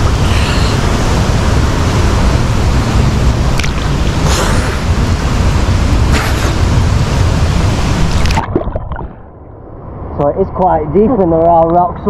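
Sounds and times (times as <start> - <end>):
river water rushing: 0.0 - 8.6
sharp water splashes: 3.5 - 5.0, 6.0 - 7.0, 7.8 - 9.2.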